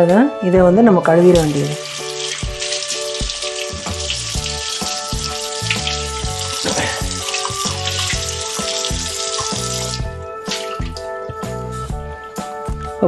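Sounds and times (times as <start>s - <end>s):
background music with steady beat: 0.0s - 13.0s
tap water splashing on skillet: 1.3s - 11.1s.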